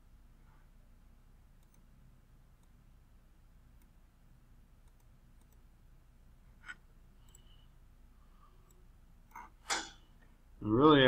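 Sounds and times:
low room hum: 0.0s - 11.0s
computer mouse clicks: 1.6s - 1.9s, 4.8s - 5.7s, 6.6s - 7.5s.

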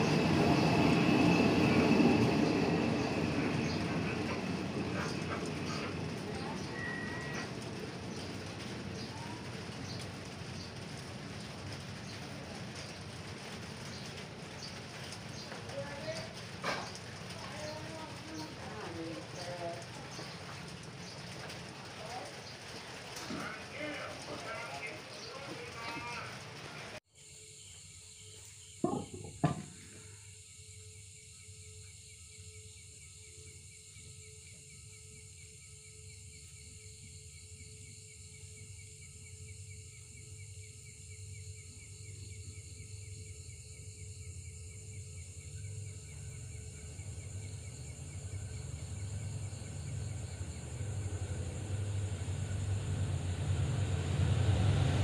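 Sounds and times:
diesel train rumble: 0.0s - 27.0s, 44.2s - 55.0s
night insects chorus: 0.0s - 55.0s
sharp knocks: 28.8s - 29.8s.

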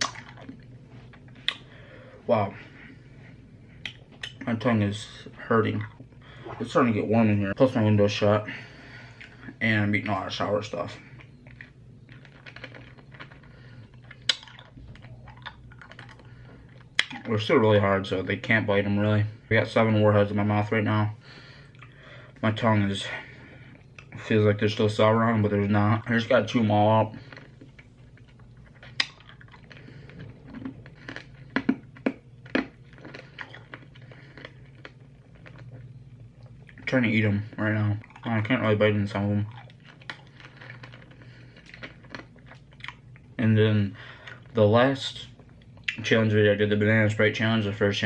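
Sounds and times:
hard candy crunching: 0.0s - 1.7s, 9.2s - 17.6s, 23.8s - 43.4s.

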